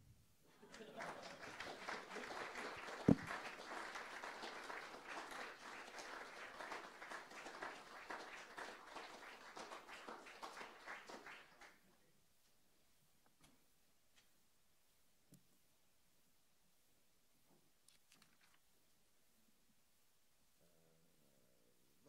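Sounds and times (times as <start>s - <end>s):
audience applauding: 0.6s - 11.8s.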